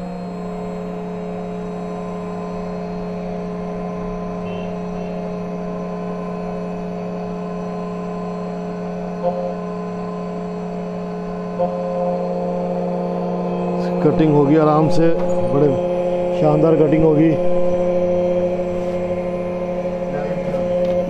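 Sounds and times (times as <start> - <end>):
key cutting machine hum: 0.0 - 21.0.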